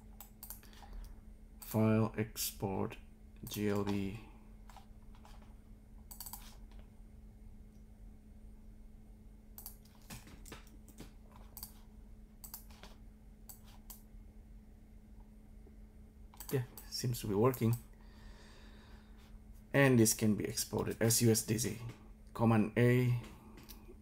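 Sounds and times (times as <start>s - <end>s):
faint steady hum: 0.0s - 24.0s
computer mouse and keyboard clicks: 0.2s - 1.1s, 3.4s - 5.5s, 6.1s - 6.9s, 9.6s - 14.0s, 16.3s - 16.9s.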